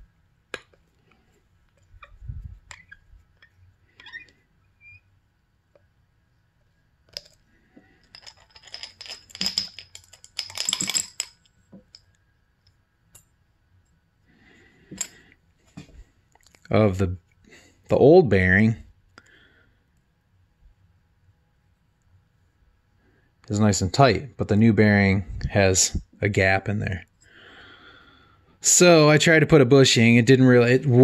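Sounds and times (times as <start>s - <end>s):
metal parts scraping and clinking: 7.1s - 12.1s, 14.9s - 15.2s.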